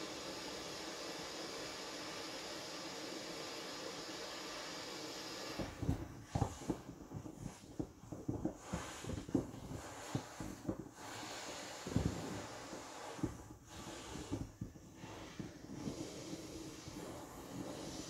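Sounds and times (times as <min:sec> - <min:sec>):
inflatable vinyl creaking and rubbing: 0:05.6 - 0:18.0.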